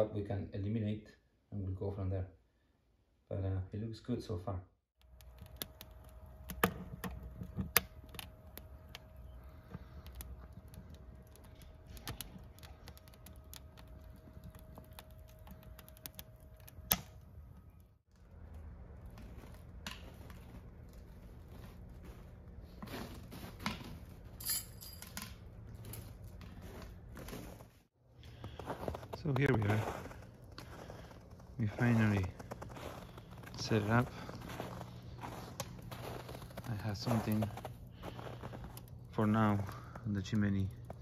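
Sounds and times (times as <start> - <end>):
low steady hum: 5.0 - 41.0.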